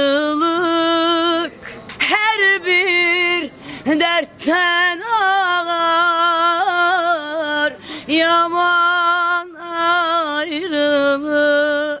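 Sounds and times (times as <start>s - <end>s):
woman singing unaccompanied: 0.0s - 12.0s.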